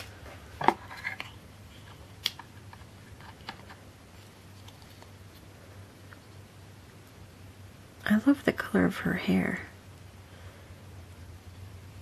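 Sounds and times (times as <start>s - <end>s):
plastic wrapping rustle: 3.6s - 5.5s.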